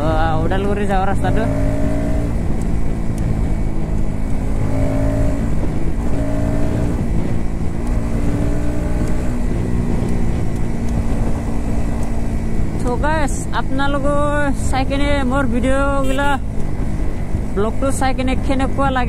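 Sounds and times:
motorcycle engine cruising: 0.0s - 19.0s.

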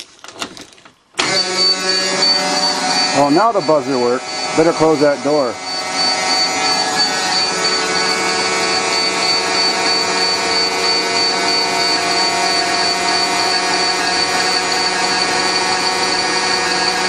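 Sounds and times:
bus warning buzzer: 1.2s - 17.0s.

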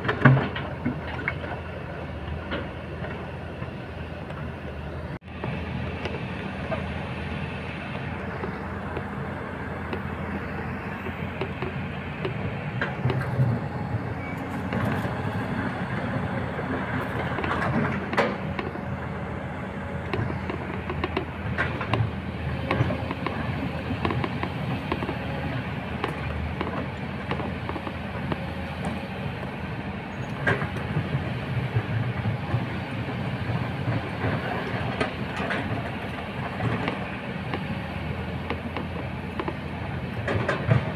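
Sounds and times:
excavator diesel engine: 0.0s - 40.9s.

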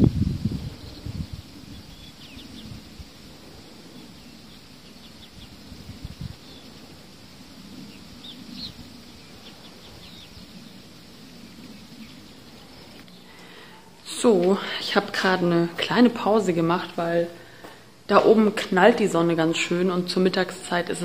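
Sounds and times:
steady low rumble: 0.0s - 13.0s
small birds chirping: 0.4s - 14.5s.

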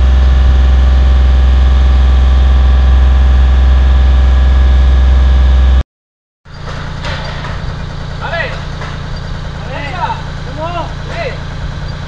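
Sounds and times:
construction machine engine drone: 0.0s - 5.8s, 6.5s - 12.0s
engine idling: 0.0s - 5.8s, 6.5s - 12.0s.

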